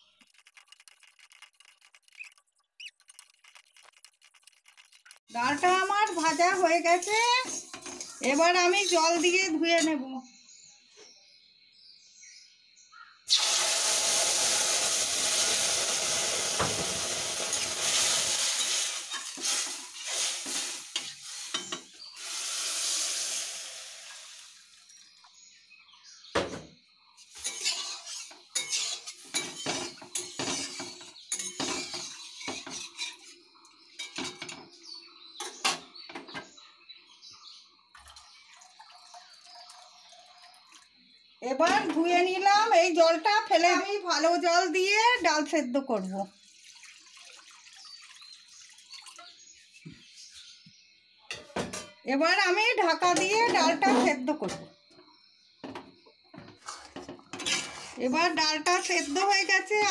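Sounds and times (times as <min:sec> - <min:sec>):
water sizzling in hot pan: 0:05.1 - 0:09.6, 0:13.3 - 0:25.2, 0:27.2 - 0:34.4, 0:46.3 - 0:49.5, 0:56.6 - 0:59.9
metal spatula scraping pan: 0:05.4 - 0:09.9, 0:27.2 - 0:33.4, 0:53.2 - 0:54.3, 0:56.4 - 0:59.9.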